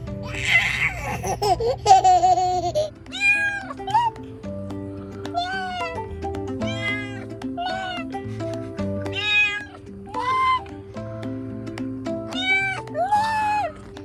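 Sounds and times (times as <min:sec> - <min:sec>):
light background music: 0:00.0 - 0:14.0
baby laughing: 0:00.2 - 0:04.3, 0:05.3 - 0:10.8
kitten meowing: 0:03.1 - 0:04.2, 0:05.3 - 0:08.2, 0:09.1 - 0:10.7, 0:12.3 - 0:13.8.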